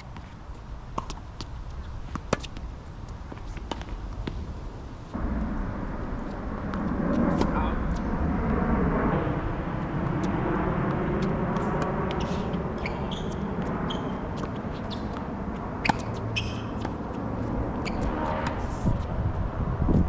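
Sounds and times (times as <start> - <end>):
racket hitting tennis ball: 0.0 - 4.5, 6.7 - 8.0, 10.9 - 18.8
outdoor background rumble: 0.0 - 20.0.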